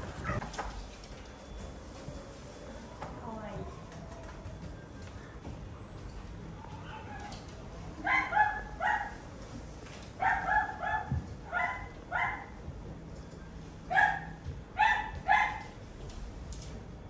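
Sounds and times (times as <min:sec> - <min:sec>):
small dog yapping: 0:13.9 - 0:15.7.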